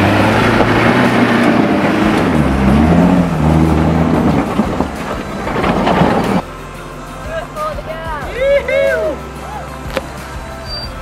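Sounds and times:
engine revving hard: 0.0 - 6.4.

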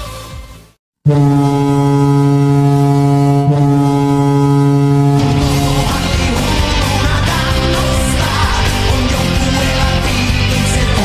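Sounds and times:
deep goal horn blast: 1.0 - 8.8
loud rock song: 4.9 - 11.0.

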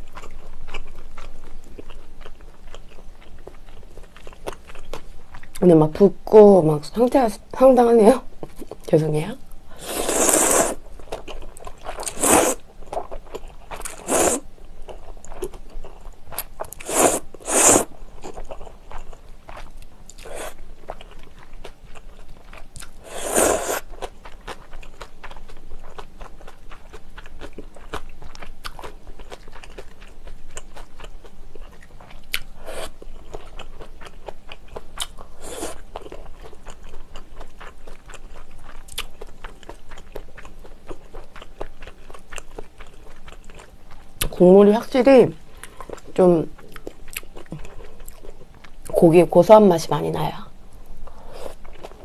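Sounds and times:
slurping noodles: 9.8 - 10.8, 12.0 - 12.6, 13.9 - 14.4, 16.8 - 17.9, 23.0 - 23.8
wet chewing: 9.8 - 44.3.

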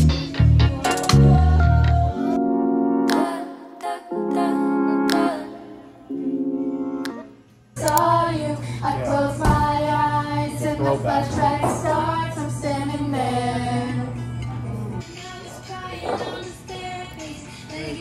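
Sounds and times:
karaoke music: 0.0 - 8.5, 9.1 - 18.0
women and girls singing karaoke: 3.1 - 6.2, 7.8 - 14.3, 15.0 - 18.0.

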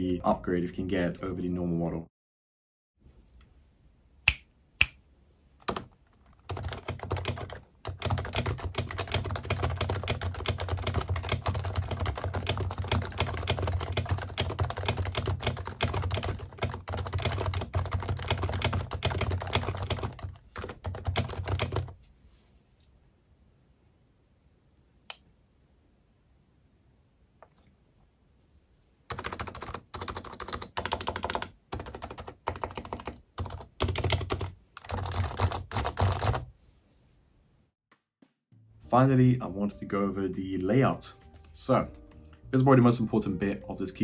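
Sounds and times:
fast typing on a keyboard: 5.6 - 22.0, 29.1 - 36.5.

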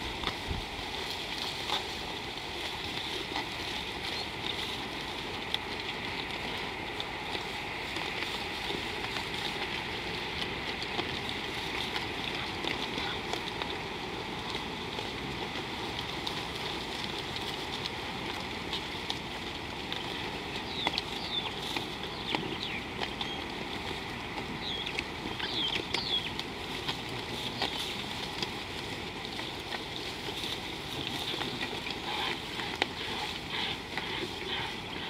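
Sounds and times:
outdoor ambient hiss: 0.0 - 35.0
bird chirps: 24.6 - 26.4.

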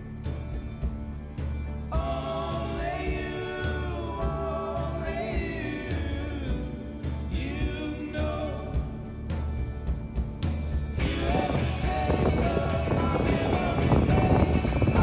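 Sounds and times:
song with vocals over beat: 1.8 - 9.6, 10.9 - 15.0.

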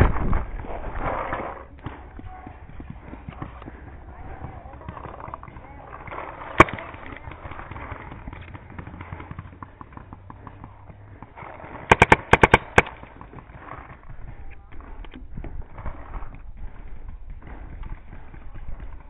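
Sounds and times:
paintball marker shots: 6.2 - 9.4, 11.6 - 13.7.

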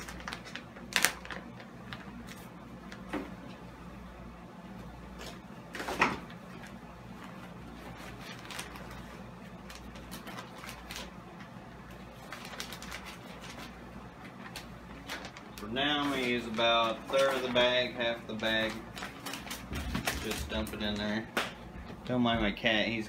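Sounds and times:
plastic bag crinkling: 0.0 - 3.0, 7.7 - 11.2, 11.9 - 21.3.

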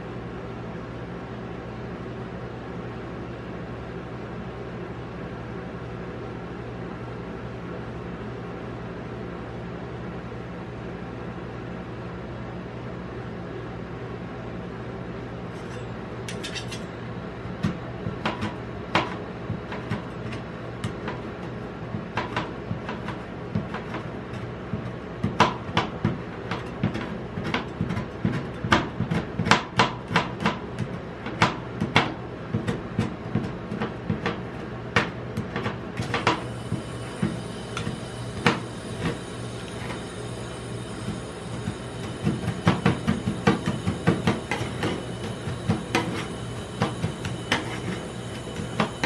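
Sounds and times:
steady low hum: 0.0 - 49.0
spatula chopping on metal plate: 15.6 - 40.0, 41.0 - 49.0.

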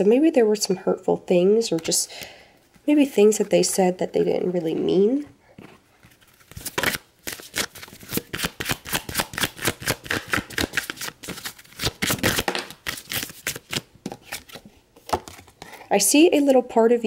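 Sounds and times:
cards being shuffled: 5.6 - 15.7.

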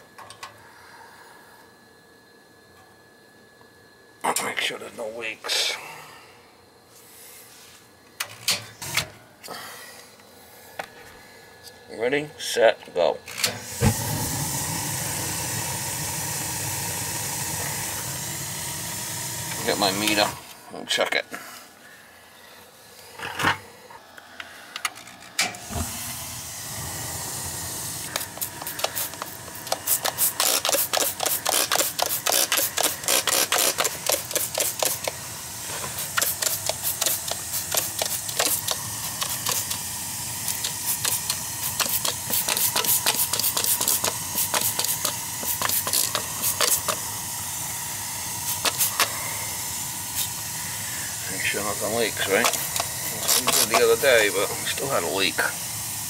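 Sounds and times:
steady hiss: 4.2 - 56.0.

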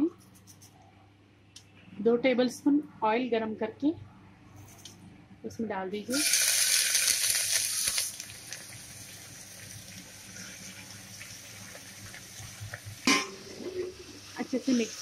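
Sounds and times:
cabbage sizzling in hot oil: 6.1 - 15.0.

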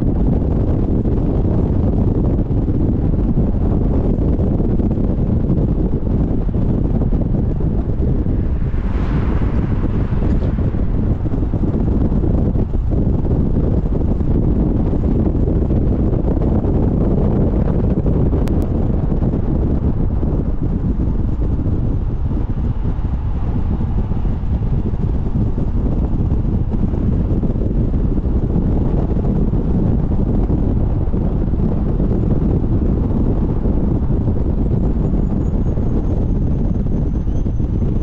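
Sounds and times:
car road noise: 0.0 - 38.0
wind rumble on microphone: 0.0 - 38.0.

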